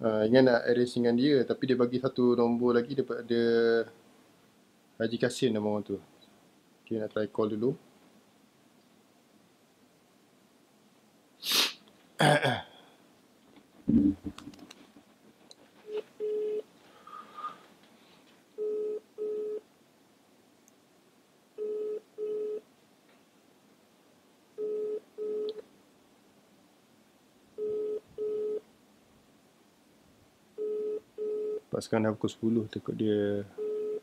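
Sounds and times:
phone ringback double beeps: 18.6s - 19.6s, 21.6s - 22.6s, 24.6s - 25.6s, 27.6s - 28.6s, 30.6s - 31.6s, 33.6s - 34.0s.

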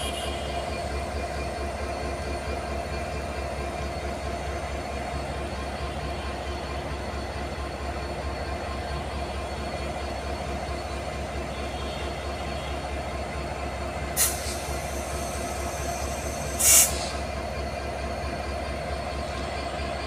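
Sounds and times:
locomotive engine throb: 0.0s - 20.0s
train wheels rumbling on rail: 0.0s - 20.0s
short bursts of hiss: 16.5s - 17.2s.

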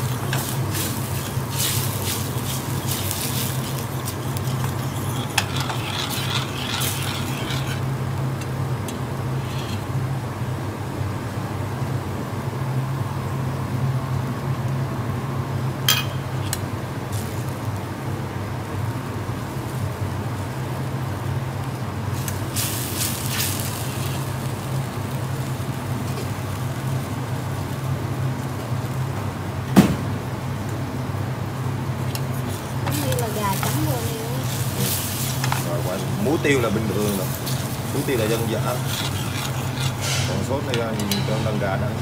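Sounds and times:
metal spoon stirring in a pan: 0.0s - 8.0s, 32.4s - 41.6s
steady low hum: 0.0s - 42.0s.

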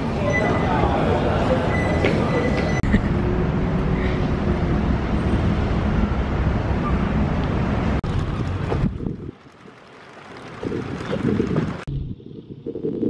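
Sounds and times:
wind buffeting microphone: 8.0s - 13.0s.

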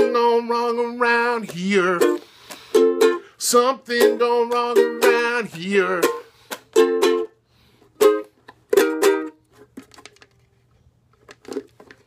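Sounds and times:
ukulele chords strummed: 0.0s - 9.4s.

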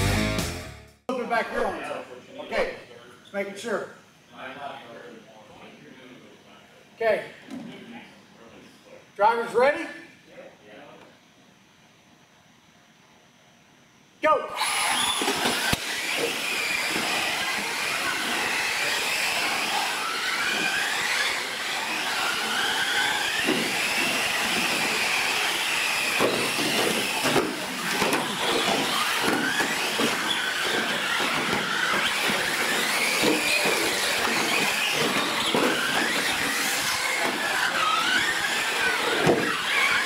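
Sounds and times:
rc truck motors whining: 14.5s - 40.0s.

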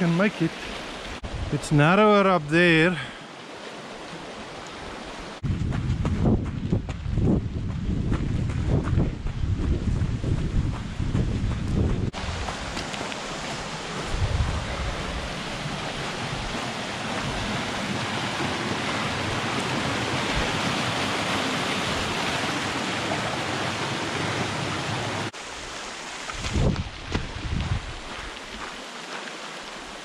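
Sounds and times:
water rushing down rocky stream bed: 0.0s - 5.5s, 12.1s - 30.0s
wind buffeting microphone: 1.1s - 1.6s, 5.4s - 17.9s, 26.4s - 28.4s.

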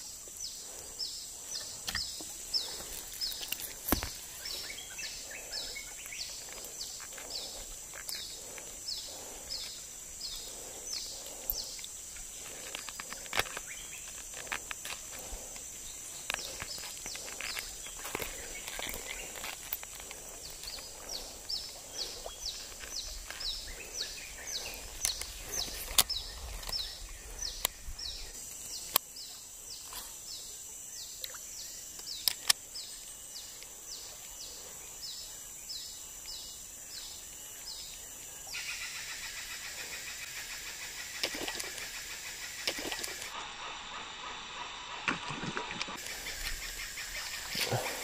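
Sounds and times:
buzzing insect chorus: 0.0s - 48.0s
high insect drone: 0.0s - 48.0s
sharp clicks: 32.0s - 32.6s.

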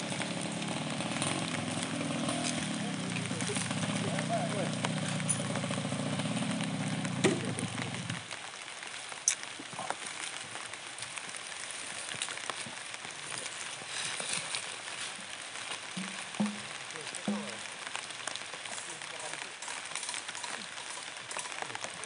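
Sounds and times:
motorcycle engine idling: 0.0s - 8.3s
drizzle pattering on leaves: 0.0s - 22.0s.

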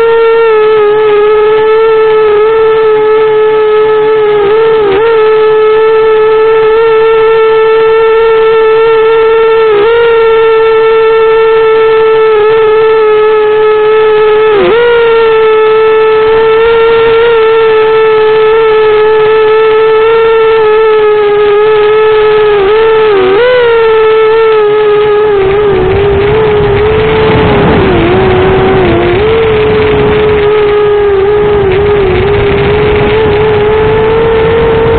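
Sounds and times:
quadcopter motors whining: 0.0s - 34.9s.

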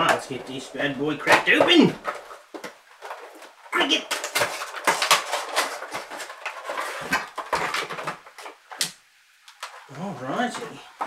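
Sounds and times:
cardboard boxes being opened: 1.2s - 8.4s
plastic packaging crinkling: 1.2s - 8.8s.

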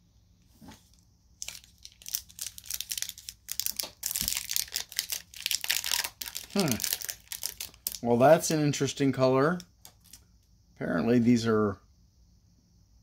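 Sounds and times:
candy wrapper crinkling: 1.4s - 8.5s, 9.5s - 10.2s.

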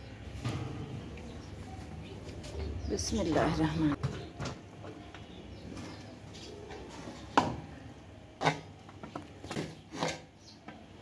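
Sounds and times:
metal spoon scraping pot: 8.4s - 8.8s, 9.5s - 10.5s.

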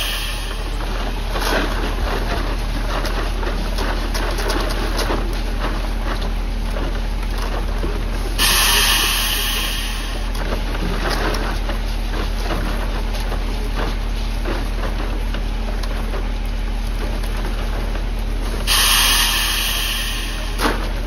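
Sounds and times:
loud hiss: 0.0s - 0.7s, 8.4s - 10.3s, 18.7s - 20.6s
truck engine drone: 0.0s - 2.3s.

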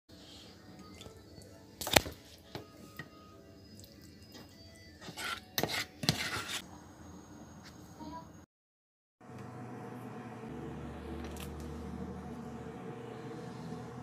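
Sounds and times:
spoon scraping ceramic plate: 5.0s - 6.6s.

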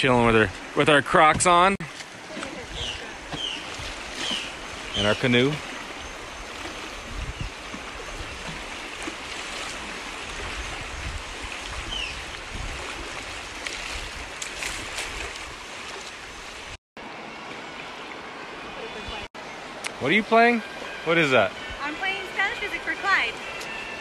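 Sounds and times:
river current rushing: 0.0s - 24.0s
wind rumble on microphone: 6.0s - 8.8s, 9.5s - 15.7s.

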